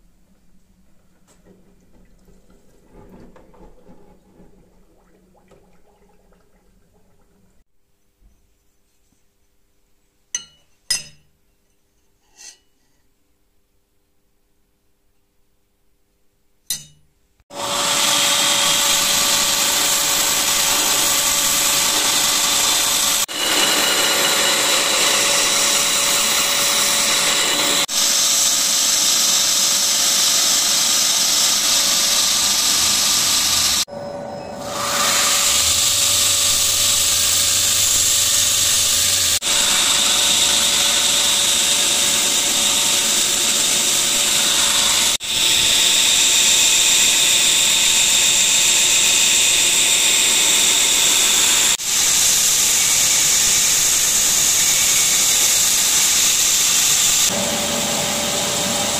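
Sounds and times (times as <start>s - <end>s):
belt grinder grinding hiss: 17.5s - 33.9s, 34.7s - 58.9s
grinder motor tone: 17.5s - 52.0s.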